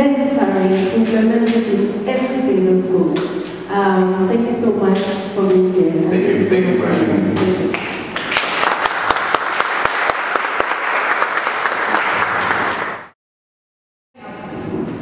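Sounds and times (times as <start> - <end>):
audience applauding: 7.7 - 13.1.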